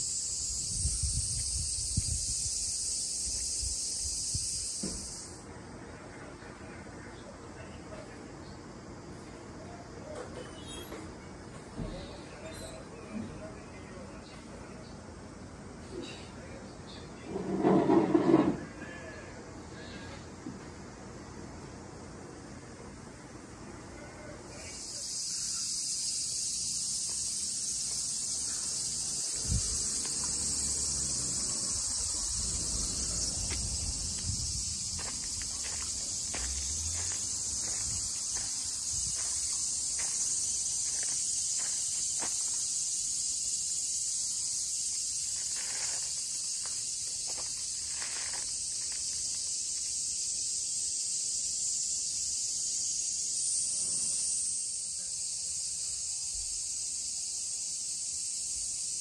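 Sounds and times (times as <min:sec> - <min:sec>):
cicadas singing: 0:00.0 - 0:59.0
footsteps on gravel: 0:33.5 - 0:42.7, 0:45.3 - 0:49.5.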